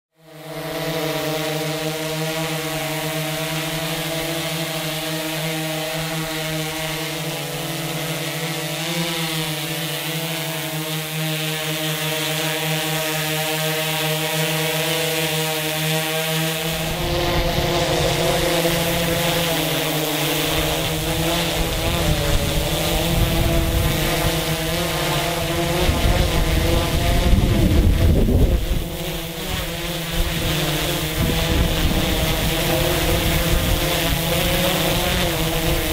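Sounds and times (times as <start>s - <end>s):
drone propellers whining: 0.7s - 35.9s
wind rumbling on microphone: 16.7s - 19.4s, 20.6s - 35.9s.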